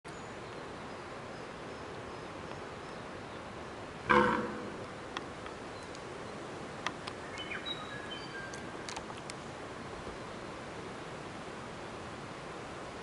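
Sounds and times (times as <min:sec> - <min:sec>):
deer stag roaring: 0:04.1 - 0:04.9
whistled bird notes: 0:07.2 - 0:08.6
small clicks: 0:08.5 - 0:09.4.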